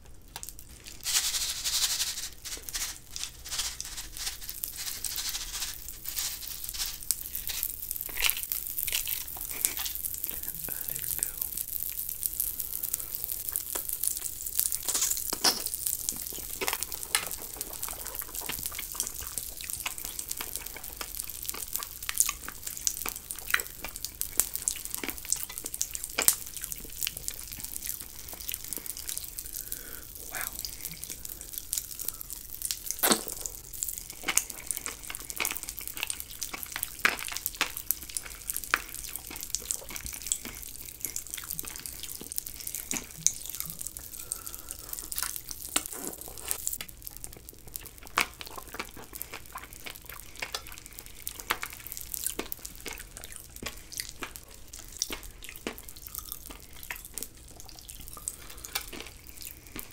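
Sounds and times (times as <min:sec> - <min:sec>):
wet chewing mouth sounds: 0:16.1 - 0:59.9.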